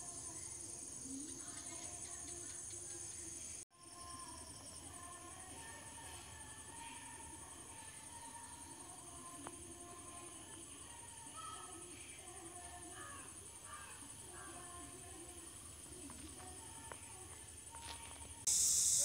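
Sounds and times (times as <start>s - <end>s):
insects buzzing: 0.0s - 19.0s
loud high hiss: 18.5s - 19.0s.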